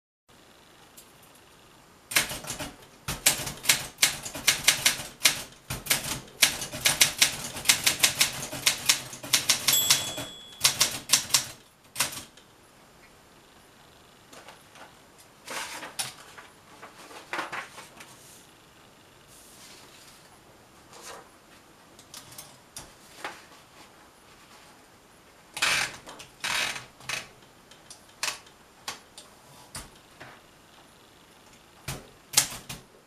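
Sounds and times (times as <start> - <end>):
typewriter key strikes: 8.0 - 12.2
typewriter margin bell: 9.4 - 11.5
paper rustling and soft clicks: 14.4 - 18.3.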